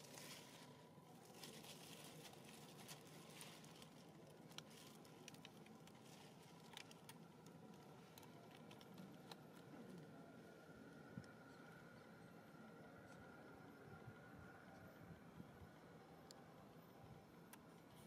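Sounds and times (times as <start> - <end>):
small clicks and rustles: 0.0 - 10.1.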